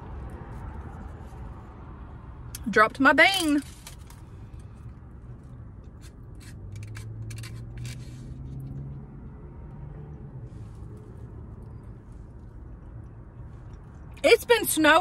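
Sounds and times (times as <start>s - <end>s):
chewing or scraping noises: 3.6s - 9.0s, 10.4s - 14.2s.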